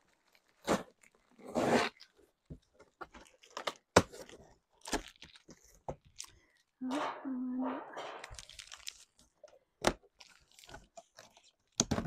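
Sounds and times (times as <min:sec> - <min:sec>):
cardboard crunching: 0:00.0 - 0:06.3.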